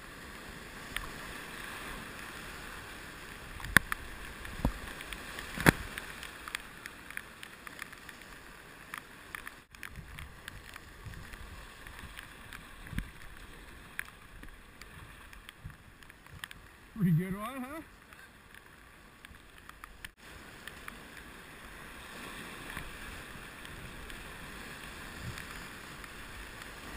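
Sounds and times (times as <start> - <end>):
whitewater rushing around canoe: 0.0 - 26.9
sharp knocks and splashes: 3.6 - 6.6.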